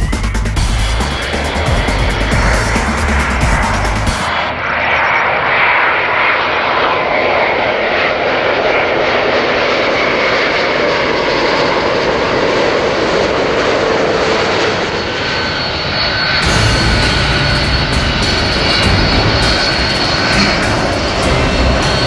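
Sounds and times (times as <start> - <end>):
airliner jet engines passing: 0.0 - 22.0
deeper jet engine whine: 0.0 - 22.0.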